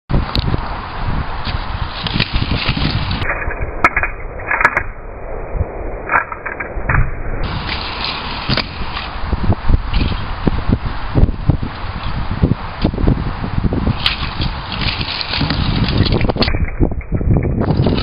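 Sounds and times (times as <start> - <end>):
scooter wheels rolling: 1.4 - 4.7, 7.5 - 13.0, 13.8 - 18.0.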